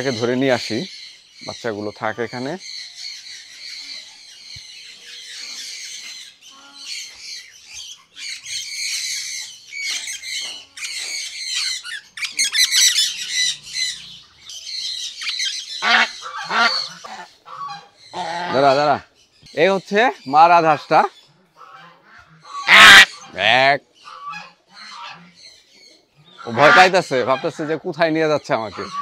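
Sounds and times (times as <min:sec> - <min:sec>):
geese squawking and honking: 0:15.1 - 0:19.0, 0:20.6 - 0:25.4, 0:26.3 - 0:29.0.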